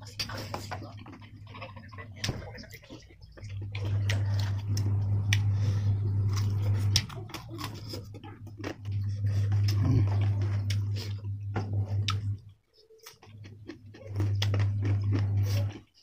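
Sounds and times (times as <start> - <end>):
low hum: 0.0 - 16.0
person chewing food: 0.1 - 16.0.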